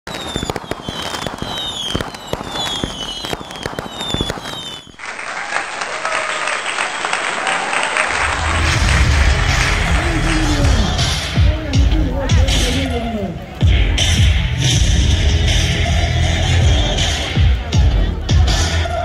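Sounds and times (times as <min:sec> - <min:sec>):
whistling fireworks: 0:00.0 - 0:11.4
firecrackers crackling: 0:00.0 - 0:18.5
crowd chattering: 0:00.2 - 0:19.0
crowd clapping: 0:02.2 - 0:11.6
music with bass beat: 0:08.2 - 0:13.0, 0:13.6 - 0:19.0.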